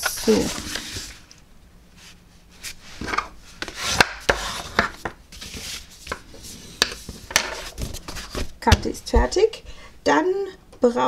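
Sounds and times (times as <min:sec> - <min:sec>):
bone folder scraping along fold: 0:02.0 - 0:08.6.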